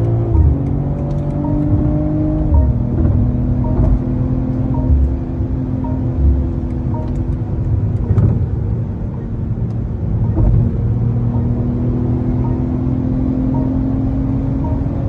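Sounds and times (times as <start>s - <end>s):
car engine drone: 0.0s - 15.0s
road and tyre rumble: 0.0s - 15.0s.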